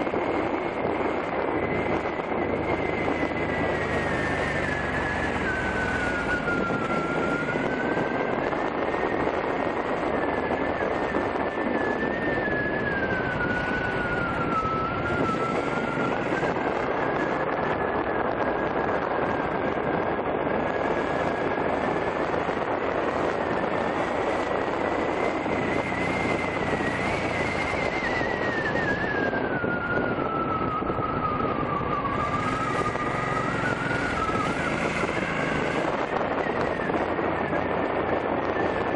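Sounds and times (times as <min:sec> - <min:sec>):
thin whine: 0:00.0 - 0:38.9
wind rushing: 0:00.0 - 0:38.9
motorcycle engine: 0:30.7 - 0:38.8.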